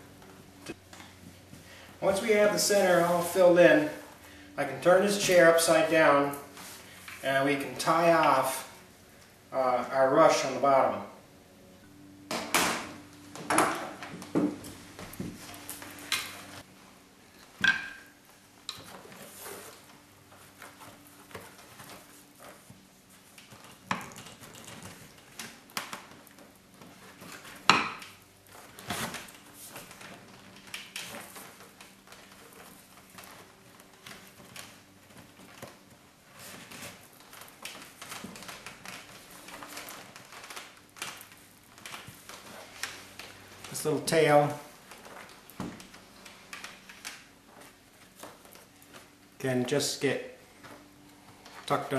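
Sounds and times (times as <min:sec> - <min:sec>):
knocks on wooden chair frame: 0:12.3 - 0:14.6
rush cord rustling and scraping: 0:18.2 - 0:51.9.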